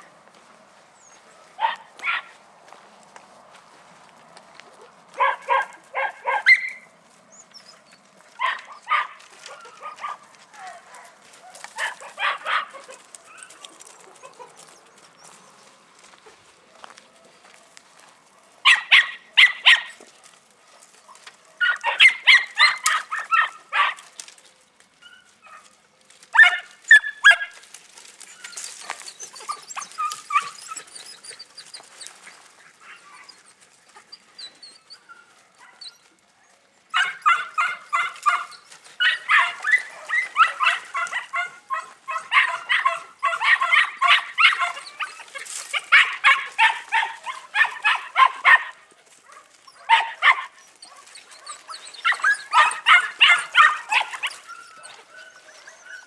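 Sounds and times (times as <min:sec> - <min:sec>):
puppies yapping: 0:01.0 - 0:02.4, 0:04.8 - 0:17.6, 0:18.4 - 0:25.7, 0:26.3 - 0:36.2, 0:36.8 - 0:56.0.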